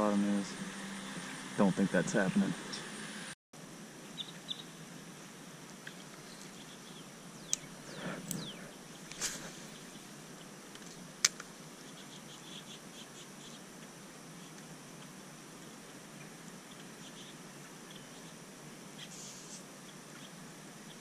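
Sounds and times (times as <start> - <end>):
insects humming: 0.0 - 21.0.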